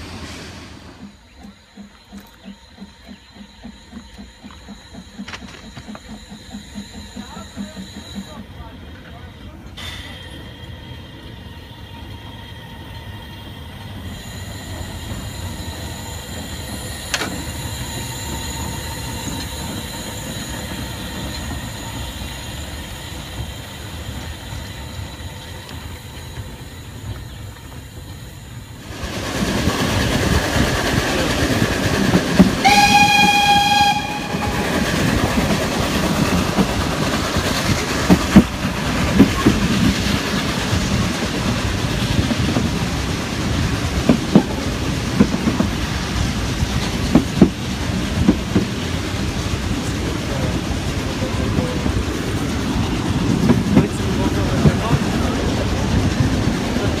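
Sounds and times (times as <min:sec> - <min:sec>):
steam locomotive moving slowly: 0:00.0 - 0:57.0
wheel and rail clatter: 0:00.6 - 0:32.6, 0:34.0 - 0:57.0
steam whistle: 0:32.6 - 0:34.9.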